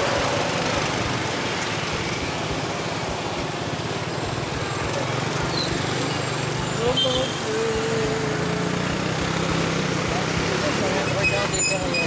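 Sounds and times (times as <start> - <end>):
road traffic hiss: 0.0 - 12.0
small motorcycle engine running: 4.3 - 12.0.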